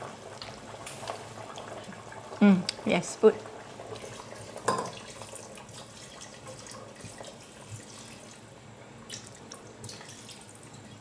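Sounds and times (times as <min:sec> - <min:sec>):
liquid trickling into pot: 0:03.4 - 0:08.5, 0:09.1 - 0:11.0.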